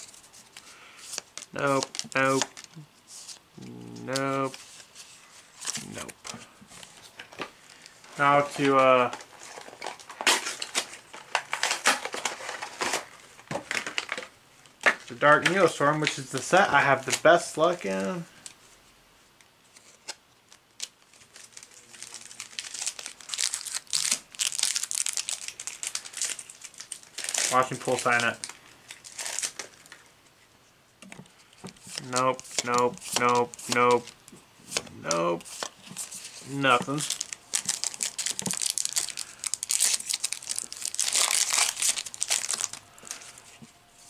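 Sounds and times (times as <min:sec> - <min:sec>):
foil wrapper crinkling: 0:00.0 - 0:02.8, 0:19.8 - 0:30.1, 0:31.4 - 0:34.2, 0:35.1 - 0:43.6.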